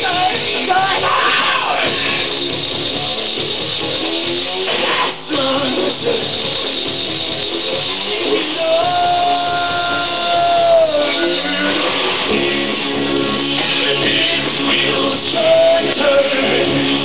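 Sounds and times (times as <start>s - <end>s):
live electronic rock band: 0.0s - 17.0s
man singing into microphone: 5.3s - 6.3s, 8.4s - 12.8s, 13.6s - 16.8s.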